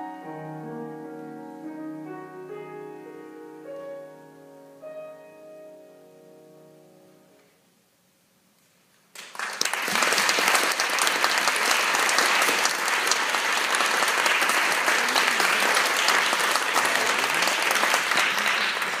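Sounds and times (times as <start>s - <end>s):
audience applauding: 9.1s - 19.0s.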